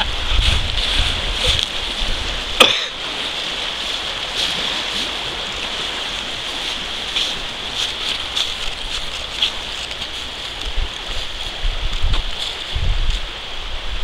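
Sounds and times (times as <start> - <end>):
stream rapids rushing: 0.0 - 14.0.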